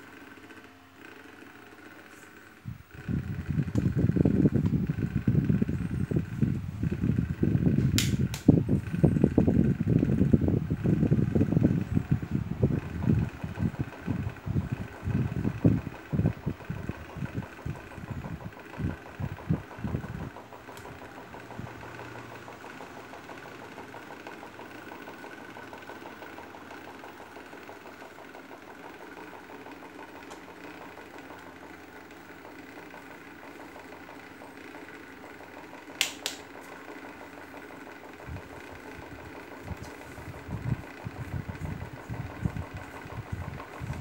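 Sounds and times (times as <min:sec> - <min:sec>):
desk fans humming: 0:00.0 - 0:44.0
sharp click: 0:07.9 - 0:08.5, 0:36.0 - 0:36.5.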